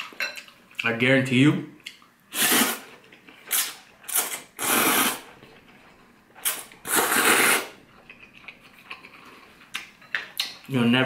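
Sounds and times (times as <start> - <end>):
noodles slurped: 3.5 - 5.2, 6.4 - 7.8.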